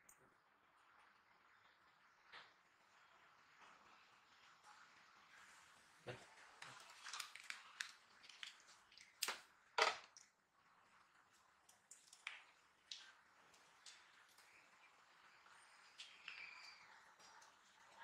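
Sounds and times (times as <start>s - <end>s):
plastic pouch crinkling: 6.8s - 8.8s.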